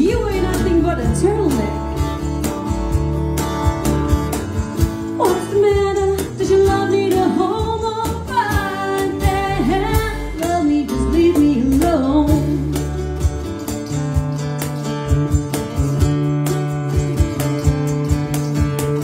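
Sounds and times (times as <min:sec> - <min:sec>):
woman singing into microphone: 0:00.0 - 0:01.9, 0:05.1 - 0:13.0
strummed guitar: 0:00.0 - 0:19.0.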